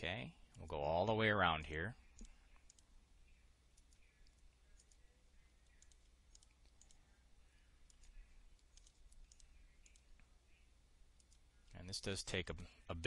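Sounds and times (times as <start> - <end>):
computer mouse clicks: 2.1 - 2.9, 3.7 - 7.0, 7.8 - 10.3, 11.2 - 11.8.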